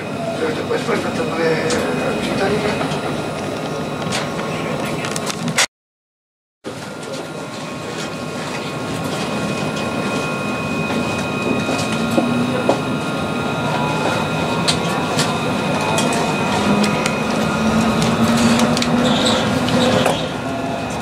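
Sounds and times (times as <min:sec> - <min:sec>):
tram running on rails: 0:00.0 - 0:05.7, 0:06.6 - 0:21.0
high whining tones: 0:08.2 - 0:21.0.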